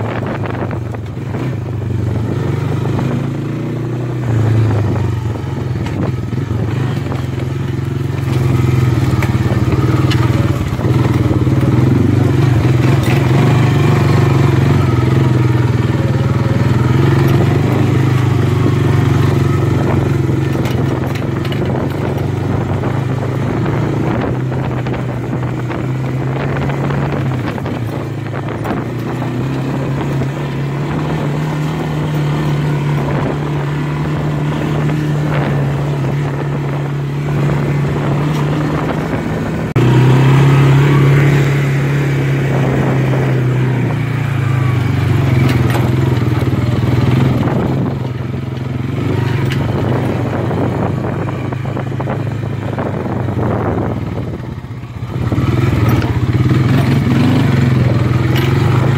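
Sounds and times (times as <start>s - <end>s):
atv engine running: 0.0s - 58.9s.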